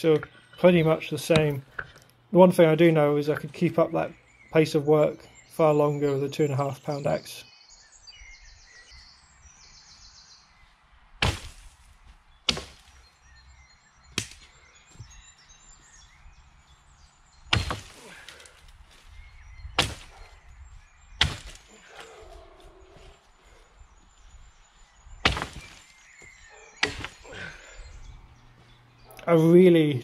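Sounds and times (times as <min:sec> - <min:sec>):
axe chopping branches: 0:11.2 - 0:13.1, 0:14.1 - 0:14.6, 0:17.5 - 0:20.4, 0:21.1 - 0:22.1, 0:25.2 - 0:27.5.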